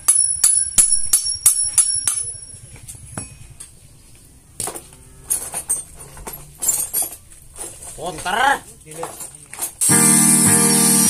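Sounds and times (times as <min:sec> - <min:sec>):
hammer striking steel: 0:00.0 - 0:02.4
steel pieces clinking: 0:04.6 - 0:09.9.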